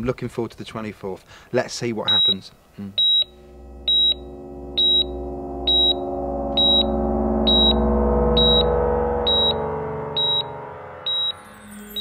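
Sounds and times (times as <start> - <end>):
low synthesizer drone: 3.0 - 12.0
short high electronic beep: 3.0 - 12.0.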